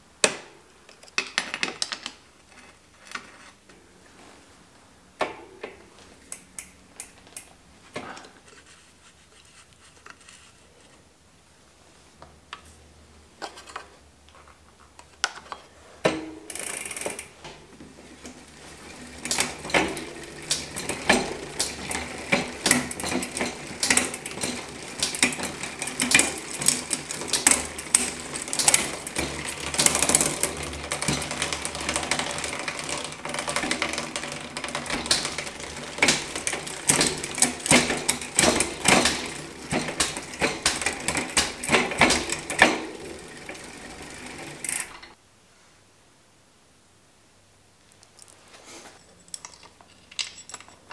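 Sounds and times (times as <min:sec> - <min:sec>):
bicycle chain clicking and rattling: 0:16.4 - 0:45.2.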